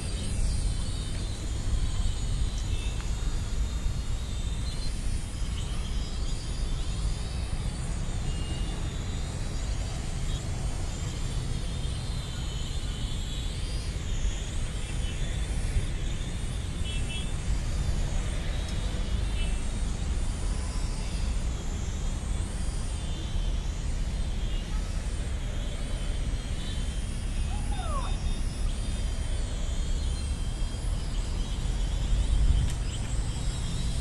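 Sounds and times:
toy drone propellers whining: 0.0 - 34.0.

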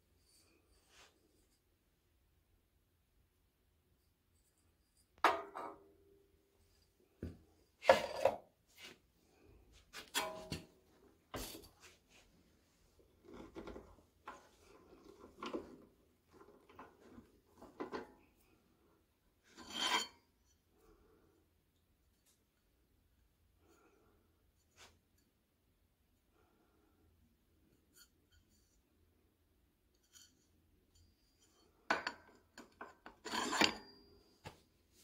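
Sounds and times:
metal plate scraping on steel: 19.5 - 20.2.

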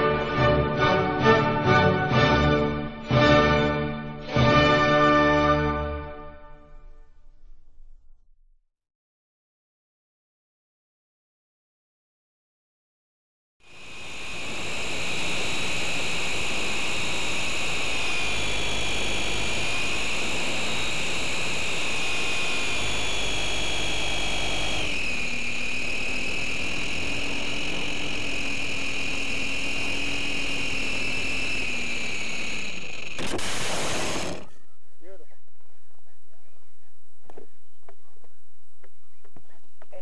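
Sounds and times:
electric motor and propeller whine: 0.0 - 4.2, 13.6 - 34.6.

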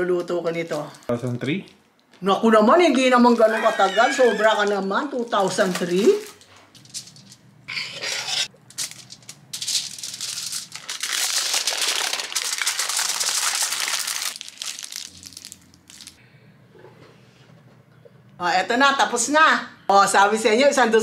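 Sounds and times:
wrapping crinkling: 4.6 - 7.4, 8.5 - 16.2.

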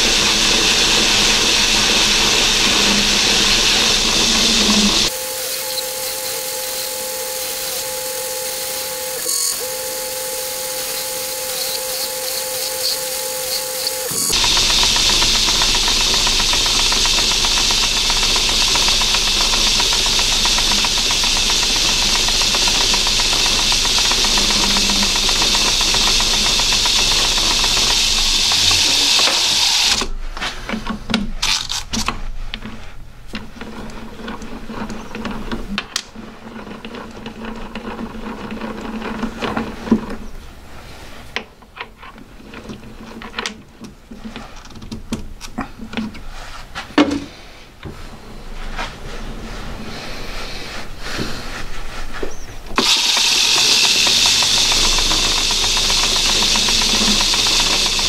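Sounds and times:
lathe humming: 0.0 - 30.1, 52.7 - 58.0
lathe tool cutting metal hiss: 0.0 - 30.1, 52.8 - 58.0.

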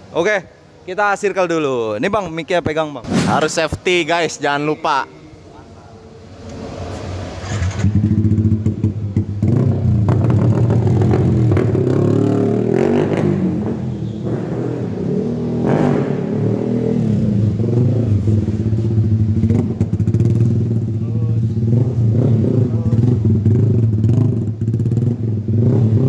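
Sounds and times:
motorcycle engine revving: 6.4 - 26.0.

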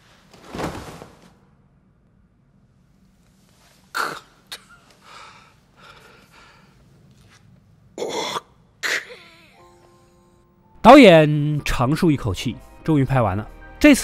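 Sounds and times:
ragged breathing: 5.0 - 6.8
man coughing: 8.0 - 9.6.

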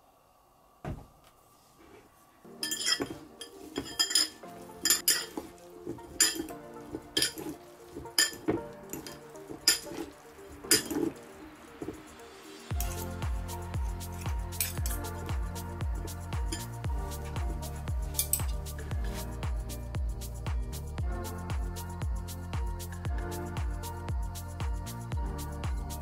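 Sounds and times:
forks clinking on glass bowl: 2.6 - 5.5, 6.2 - 6.6, 7.2 - 7.5, 8.2 - 10.0, 10.6 - 11.1.

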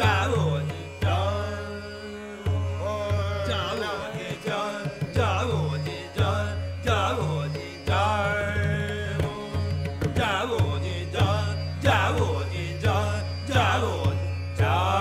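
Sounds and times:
man singing: 0.0 - 15.0
tanpura drone: 0.0 - 15.0.

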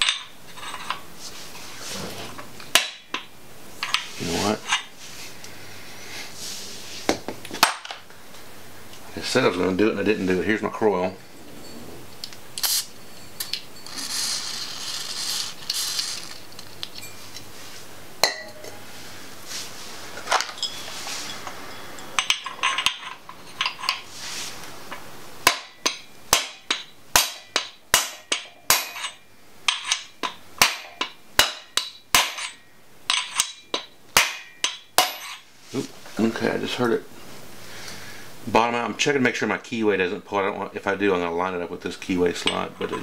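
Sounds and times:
hammer striking metal: 2.7 - 4.0, 25.4 - 35.4
metal clinks: 10.9 - 17.5, 20.3 - 24.1, 24.9 - 35.5.

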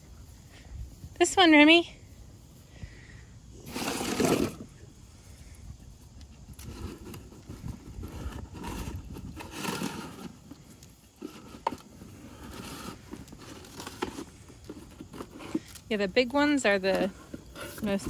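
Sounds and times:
cardboard scraping over asphalt: 3.6 - 4.8, 6.6 - 18.0
cardboard rustling and crinkling: 6.6 - 15.9, 16.5 - 18.0.

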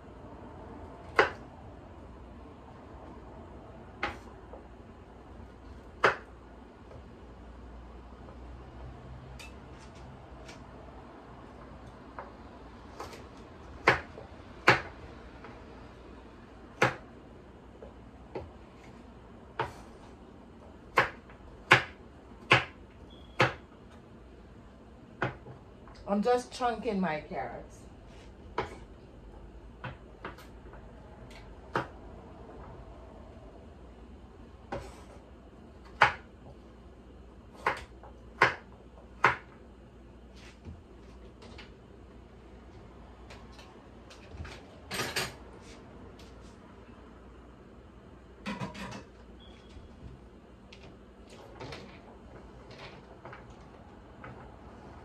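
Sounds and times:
knife chopping on wooden board: 1.1 - 1.4, 6.0 - 6.3, 13.8 - 14.9, 16.8 - 17.0, 19.6 - 19.9, 20.9 - 22.8, 36.0 - 36.3, 37.6 - 39.5.

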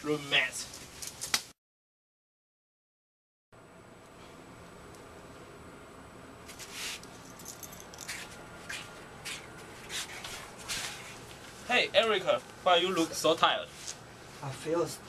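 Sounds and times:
soft rustling scuffs: 6.5 - 12.5, 13.6 - 14.7.

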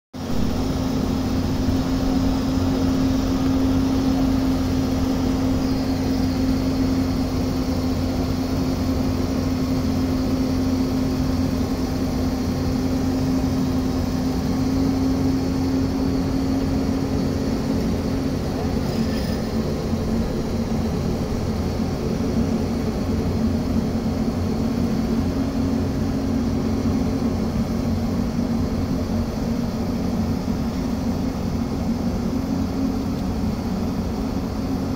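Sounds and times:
excavator diesel engine running: 0.2 - 34.9.

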